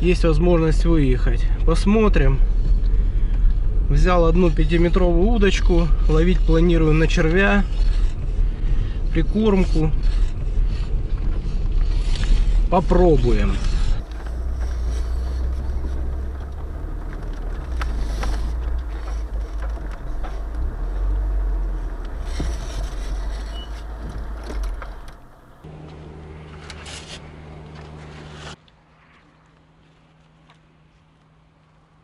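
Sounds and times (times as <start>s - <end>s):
car engine and road rumble: 0.0s - 28.7s
steady hum: 18.5s - 28.6s.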